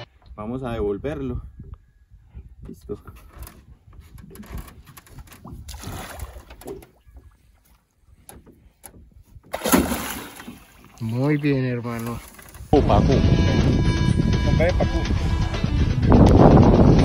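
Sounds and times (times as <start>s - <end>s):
water splashing against boat: 3.2s - 12.8s.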